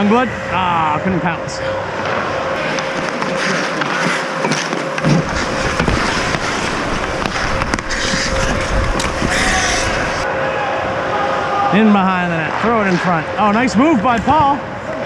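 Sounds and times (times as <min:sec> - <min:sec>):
skates scraping on ice: 0:02.0 - 0:10.2
hockey sticks and puck clacking: 0:02.6 - 0:10.1.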